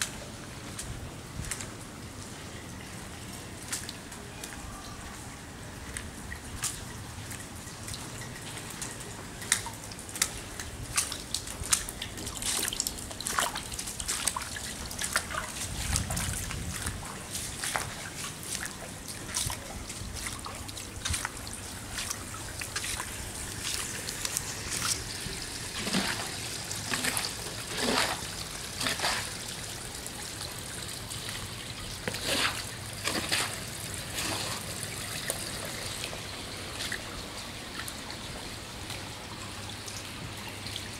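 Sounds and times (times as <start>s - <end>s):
water trickling and dripping: 0.0s - 40.9s
sharp water splashes: 6.4s - 38.1s.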